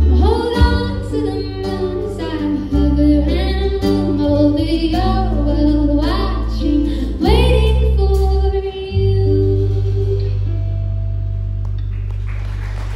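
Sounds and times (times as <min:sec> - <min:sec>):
drums: 0:00.0 - 0:03.1
woman singing: 0:00.0 - 0:10.5
acoustic guitar: 0:00.0 - 0:12.9
bass guitar: 0:00.0 - 0:12.9
electric guitar: 0:00.0 - 0:12.9.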